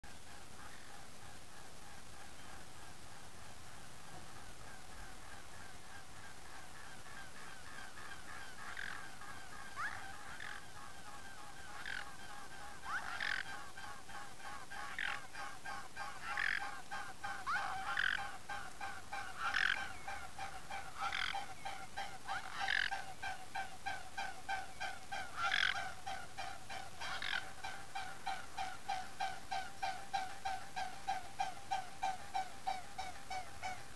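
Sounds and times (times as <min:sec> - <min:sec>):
waterfowl honking: 0:04.2 - 0:33.9.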